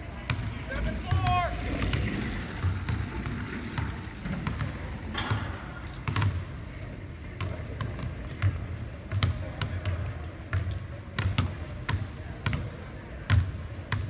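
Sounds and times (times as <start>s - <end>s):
basketball bouncing on hardwood: 3.8s - 6.4s, 7.4s - 12.7s.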